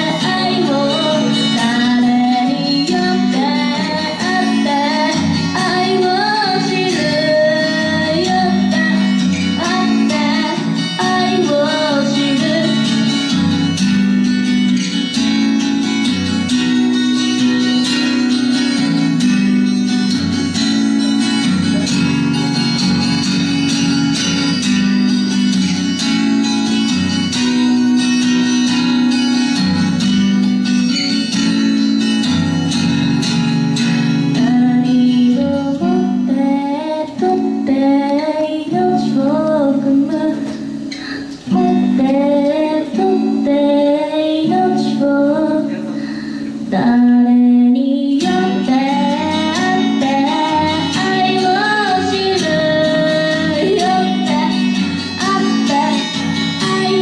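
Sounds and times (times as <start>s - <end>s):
woman singing: 0.0s - 14.0s, 34.2s - 46.0s, 46.6s - 57.0s
acoustic guitar strumming chords: 0.0s - 57.0s.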